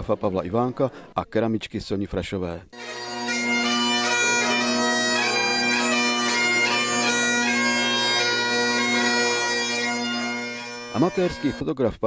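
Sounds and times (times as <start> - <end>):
bagpipes playing: 2.8 - 11.6.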